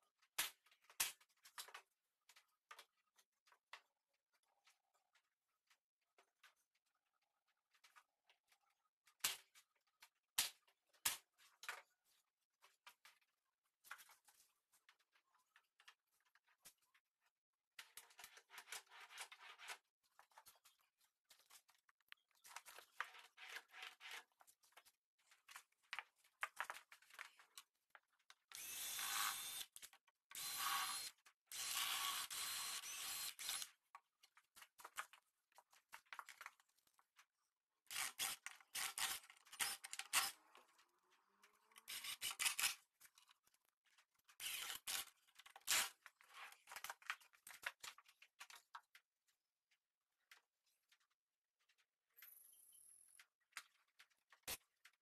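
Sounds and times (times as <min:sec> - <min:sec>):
cordless drill driving screws: 0:28.5 - 0:29.7, 0:30.3 - 0:33.7, 0:41.9 - 0:42.7, 0:44.4 - 0:45.1.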